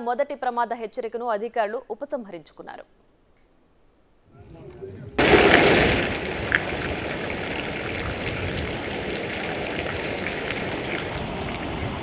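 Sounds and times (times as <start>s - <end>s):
floodwater rushing in river: 5.2s - 12.0s.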